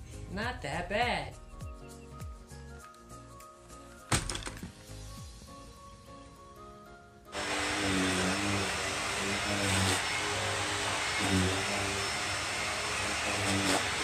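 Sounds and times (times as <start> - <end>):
vacuum cleaner running: 7.3 - 14.0.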